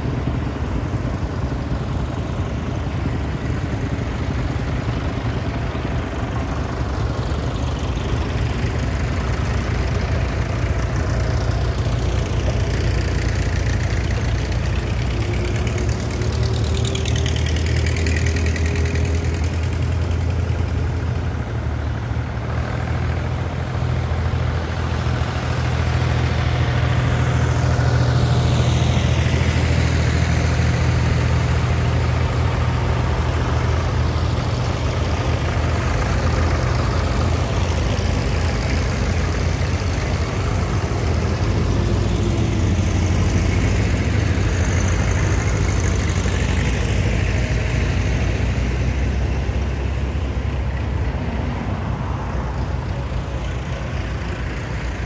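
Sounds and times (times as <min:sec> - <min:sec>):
tractor engines passing: 0:00.0 - 0:55.0.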